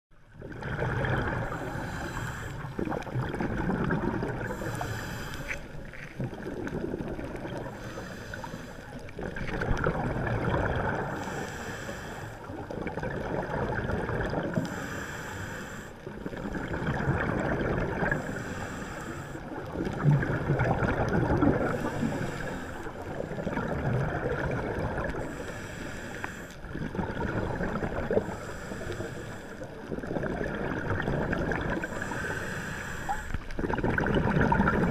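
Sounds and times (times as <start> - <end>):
bubbling exhale: 0.3 - 34.9
hissing regulator inhale: 1.4 - 2.8, 4.4 - 6.0, 7.6 - 9.1, 11.0 - 12.6, 14.5 - 16.7, 18.1 - 19.6, 21.7 - 23.5, 25.1 - 26.7, 28.1 - 29.9, 31.8 - 33.6.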